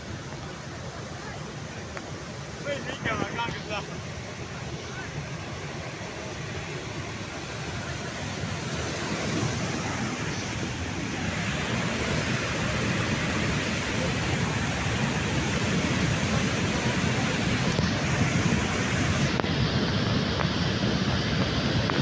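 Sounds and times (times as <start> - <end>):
flood water rushing: 0.0 - 22.0.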